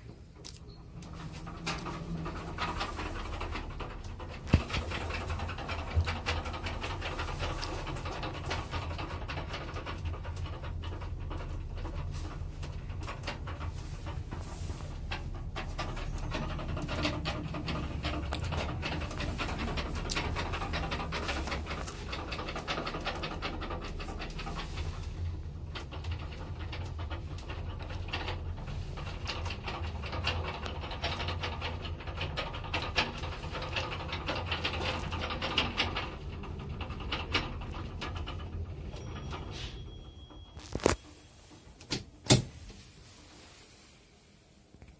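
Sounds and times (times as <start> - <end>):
elevator humming and rattling: 0.0 - 44.9.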